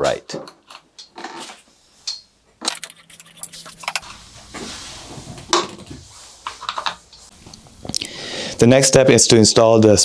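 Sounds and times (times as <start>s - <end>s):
metal parts and tools clinking: 0.3s - 4.2s.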